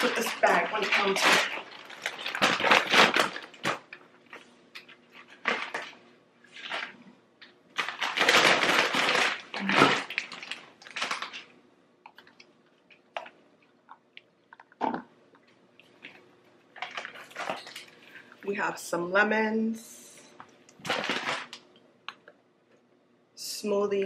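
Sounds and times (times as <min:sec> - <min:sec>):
bag and packaging rustling: 0:00.0 - 0:11.5, 0:15.9 - 0:18.5, 0:20.8 - 0:21.6
items clicking and knocking: 0:16.8 - 0:18.0.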